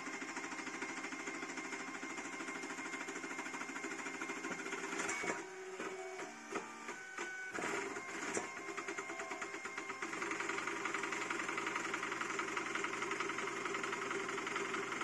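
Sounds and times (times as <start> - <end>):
printer mechanical buzz: 0.0 - 15.0
stepper motors whining: 5.0 - 11.2.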